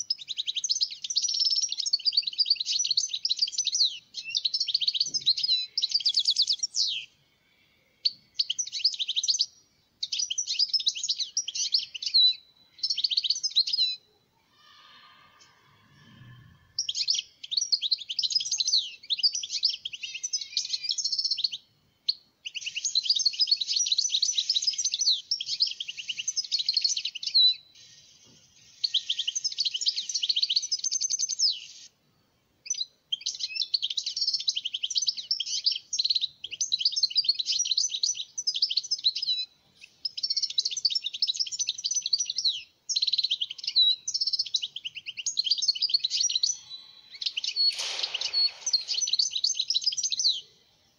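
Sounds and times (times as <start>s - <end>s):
goldfinch twittering song: 8.1s - 14.0s, 32.7s - 50.5s.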